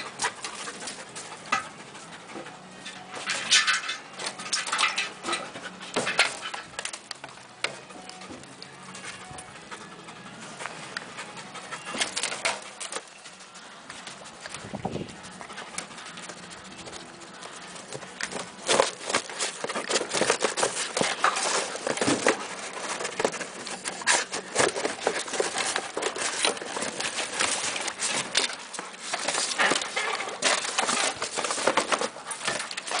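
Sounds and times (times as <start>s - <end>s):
dog scrambling over plastic objects: 2.4s - 8.4s, 17.5s - 33.0s.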